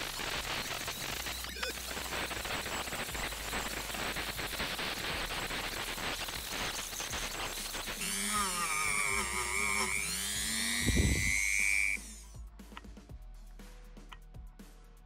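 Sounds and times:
music: 0.0 - 15.0
rotary tool scrubbing metal: 7.0 - 12.2.

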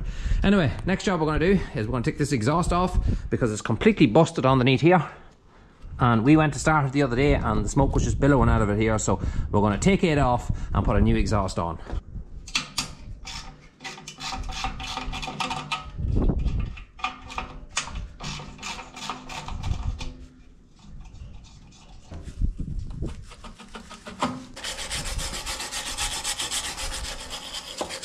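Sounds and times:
metal scraping on metal: 12.7 - 28.0.

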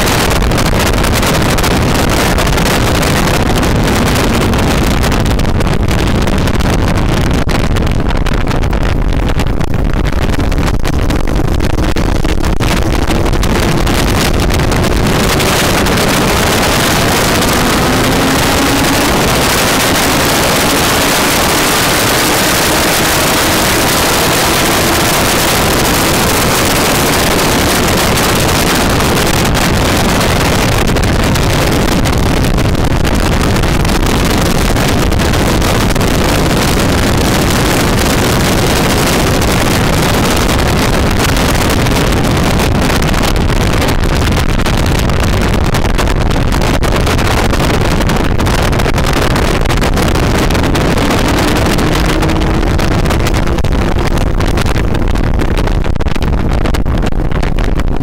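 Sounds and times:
wind rushing over microphone: 0.0 - 58.0
faint motorcycle engine: 13.6 - 29.4, 50.0 - 53.7.

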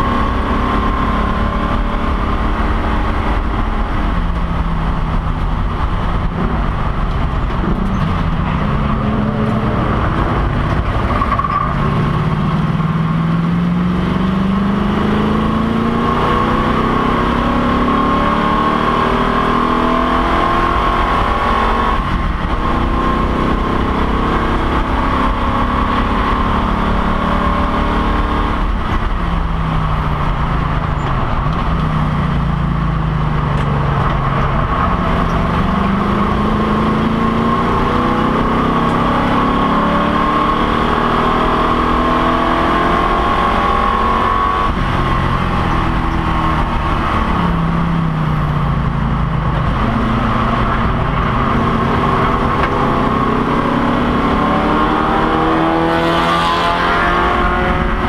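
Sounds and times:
race car engine accelerating: 0.0 - 58.0
road and wind noise: 0.0 - 58.0.

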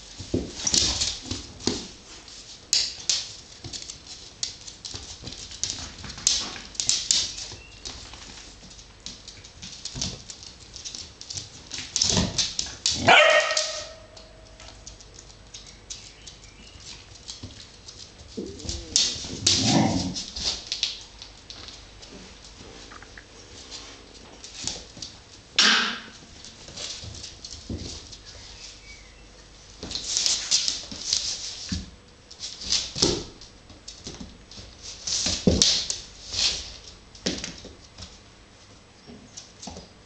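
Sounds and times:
claws clicking on wooden floor: 0.2 - 23.3
loud high-pitched dog bark: 13.0 - 14.1.

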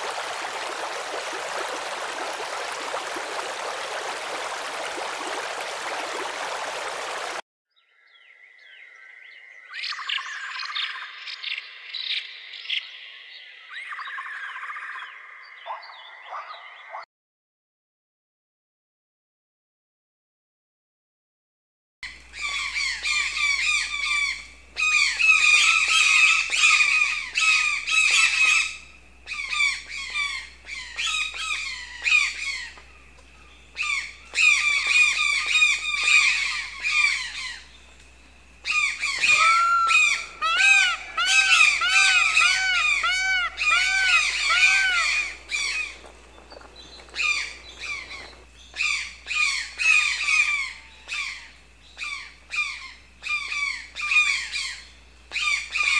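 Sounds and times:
birds squawking: 22.4 - 37.7, 38.6 - 55.9
arching bird calls: 38.6 - 51.4.

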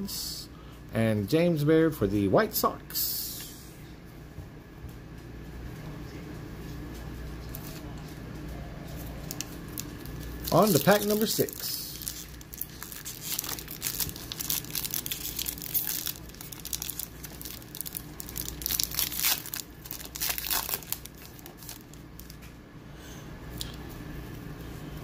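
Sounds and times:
wrapper tearing and crinkling: 9.2 - 22.4.

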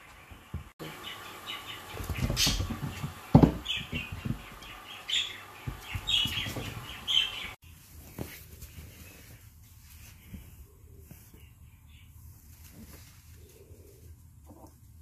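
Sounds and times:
birds chirping: 0.0 - 7.6
pets thumping on floor: 1.8 - 4.9, 5.6 - 7.6.

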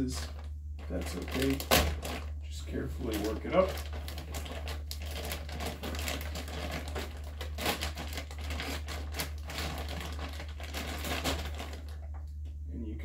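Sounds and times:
plastic bag crinkling: 0.0 - 12.3
low steady hum: 0.0 - 13.0.

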